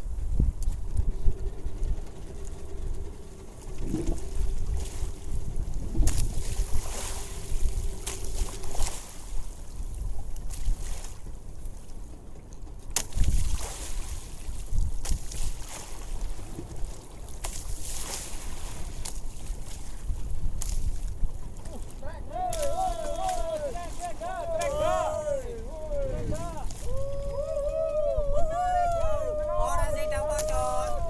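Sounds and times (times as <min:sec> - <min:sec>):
wind buffeting microphone: 0:00.0 - 0:17.3, 0:18.8 - 0:31.0
faint steady hum: 0:00.0 - 0:31.0
water splashes: 0:03.6 - 0:11.6, 0:12.4 - 0:31.0
sea slapping against boat hull: 0:05.9 - 0:09.2, 0:12.9 - 0:27.0, 0:30.3 - 0:31.0.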